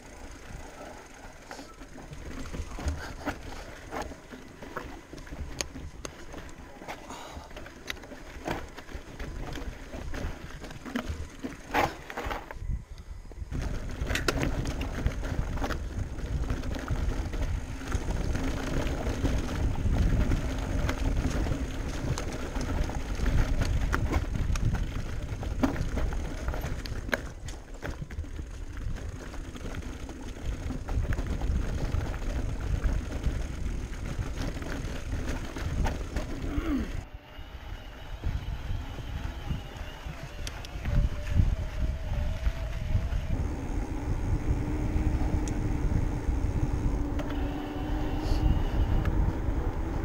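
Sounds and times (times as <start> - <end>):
bike knocking and rattling: 0.0 - 37.0, 37.9 - 50.0
bike tyres rumbling on dirt trail: 0.0 - 50.0
wind on microphone: 9.3 - 29.2, 30.6 - 50.0.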